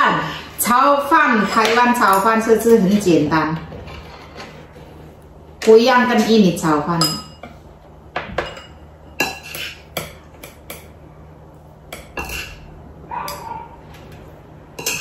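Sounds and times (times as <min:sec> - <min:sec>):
utensils clinking on plates: 0:06.9 - 0:07.6, 0:08.3 - 0:10.9, 0:11.9 - 0:15.0.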